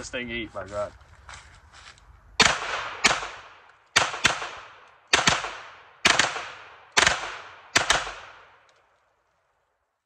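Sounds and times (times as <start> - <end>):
pistol shots with echo: 2.4 - 8.6.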